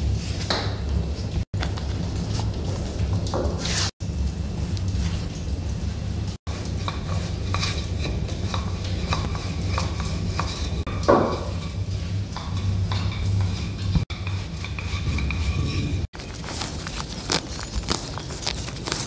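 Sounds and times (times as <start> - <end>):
hands working dough on table: 0.0 - 19.0
steady low hum: 4.0 - 19.0.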